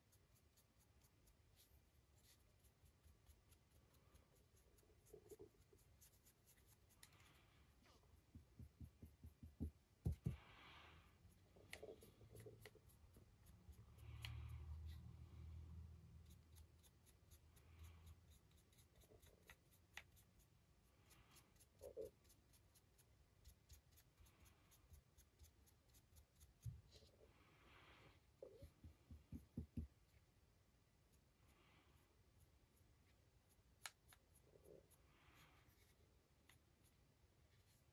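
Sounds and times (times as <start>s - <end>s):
handling ticks and rubs: 0.0s - 10.4s, 11.2s - 15.1s, 16.1s - 27.3s.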